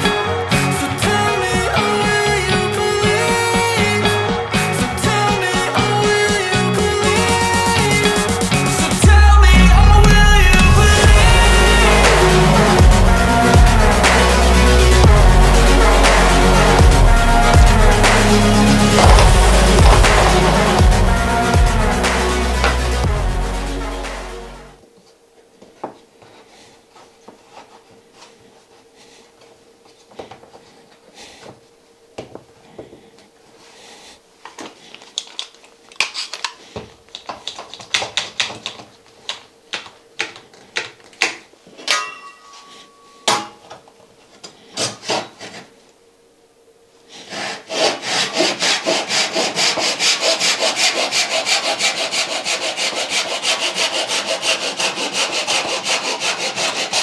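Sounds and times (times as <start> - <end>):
hand saw cutting wood: 18.0 - 20.8, 47.2 - 57.0.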